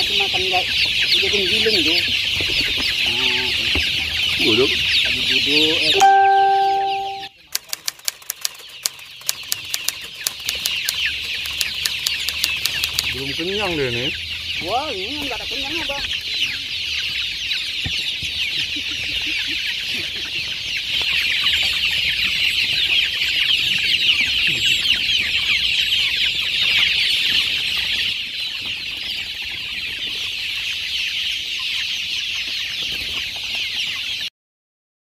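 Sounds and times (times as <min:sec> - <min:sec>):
chicks peeping: 0:00.0 - 0:34.3.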